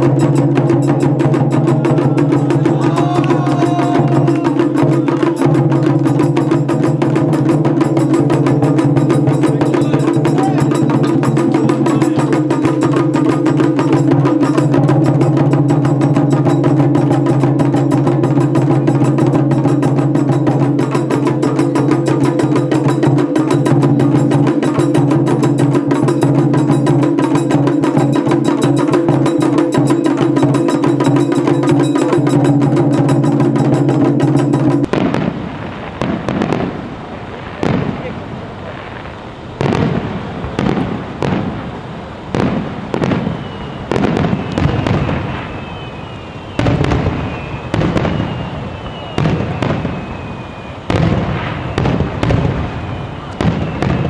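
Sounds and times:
taiko drums beaten with sticks: 0.0s - 35.4s, 42.3s - 45.8s, 46.5s - 50.3s, 50.9s - 52.7s, 53.4s - 54.0s
fireworks popping: 34.3s - 54.0s.

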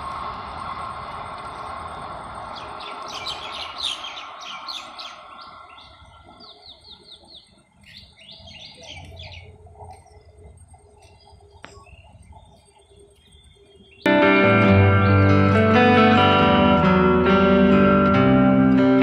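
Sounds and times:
train rumble: 0.0s - 13.3s
small birds chirping: 2.5s - 14.1s.

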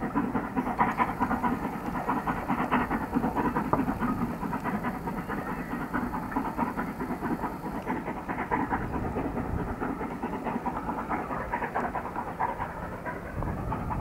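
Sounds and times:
distant steam locomotive chuffing: 0.0s - 14.0s.

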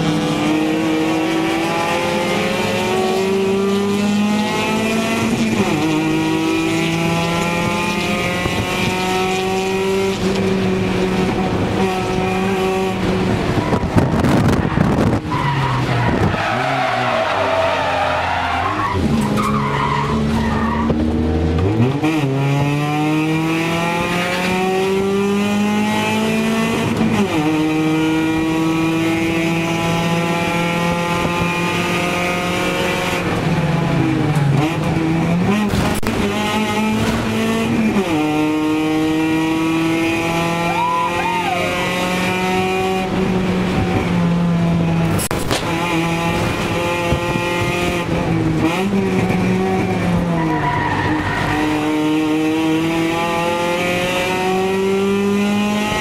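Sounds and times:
race car engine revving through gears: 0.0s - 56.0s.

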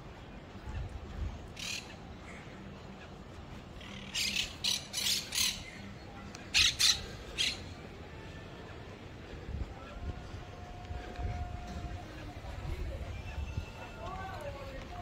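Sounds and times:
birds harsh calls: 1.4s - 8.0s.

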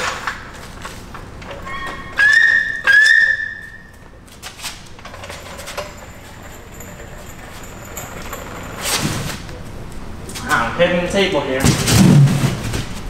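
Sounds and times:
high-pitched squeak: 1.5s - 4.0s.

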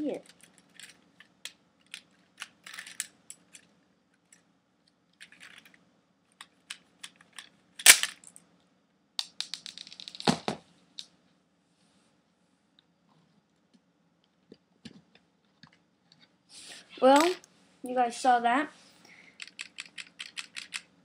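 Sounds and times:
plastic toy gun clicks and snaps: 7.8s - 8.2s.

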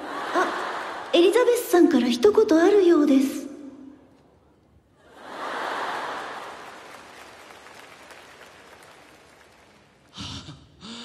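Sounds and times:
large audience applauding: 5.1s - 10.2s.

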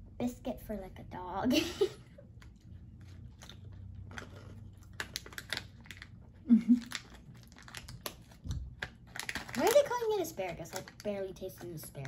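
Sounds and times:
biscuits crunching: 2.2s - 11.2s
plastic snack packet crinkling: 2.4s - 12.0s.

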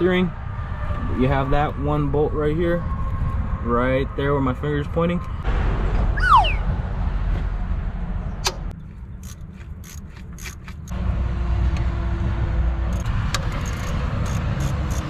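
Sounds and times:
wrench clicking on metal bolt: 9.2s - 10.9s.

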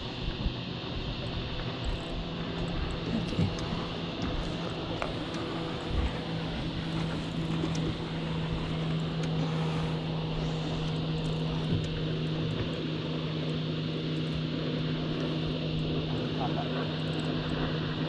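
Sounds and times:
outboard motor running: 0.0s - 18.0s.

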